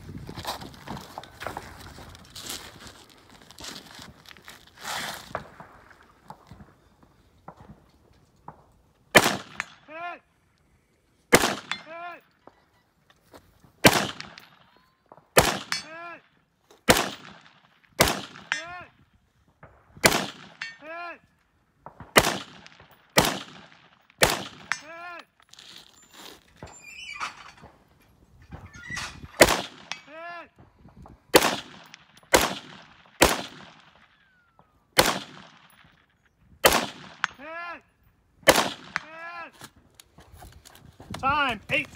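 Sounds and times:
rifle shots: 9.1 - 9.8, 11.3 - 11.9, 13.8 - 14.6, 15.3 - 15.9, 16.8 - 18.7, 20.0 - 20.7, 21.9 - 24.9, 29.4 - 30.1, 31.3 - 34.2, 35.0 - 36.0, 36.6 - 37.4, 38.4 - 39.1.

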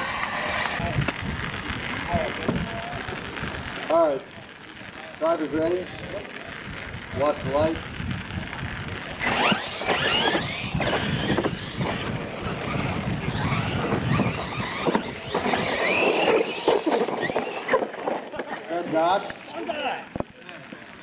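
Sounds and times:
toy truck electric motors whining: 0.0 - 0.8, 9.2 - 18.3.

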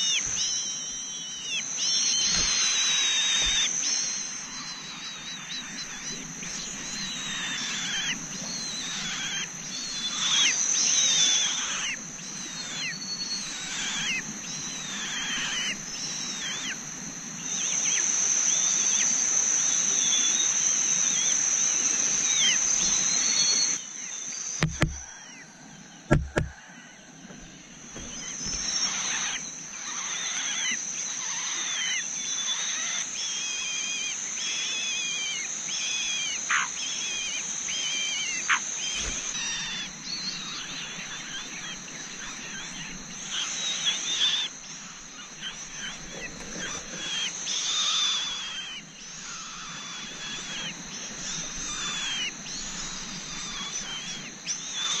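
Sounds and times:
birds chirping: 0.0 - 55.0
sharp knocks: 24.6 - 25.0, 26.1 - 26.6.

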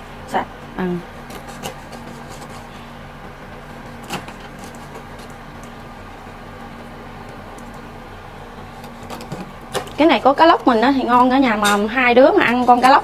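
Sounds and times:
steady low hum: 0.0 - 13.0
knife slicing fish: 1.3 - 2.7.

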